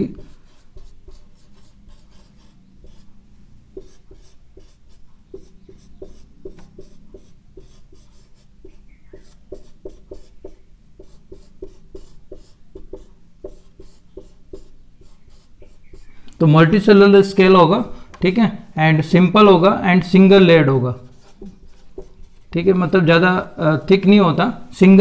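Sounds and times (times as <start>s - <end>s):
marker drawing on whiteboard: 0.0s - 16.9s, 21.1s - 23.1s.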